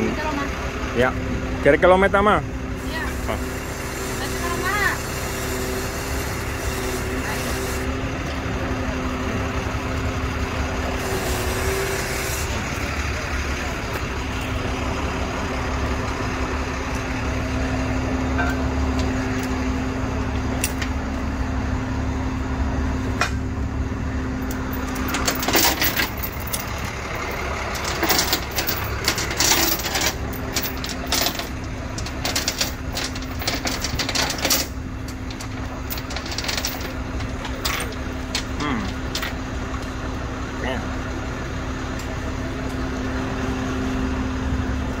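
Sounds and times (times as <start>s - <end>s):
truck engine idling: 0.0s - 45.0s
tow chain clanking: 24.4s - 39.5s.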